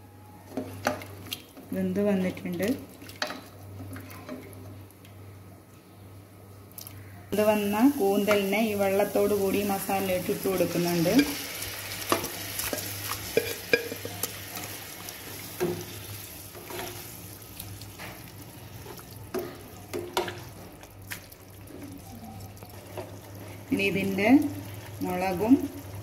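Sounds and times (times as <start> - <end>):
gravy sizzling: 7.4 - 26.0.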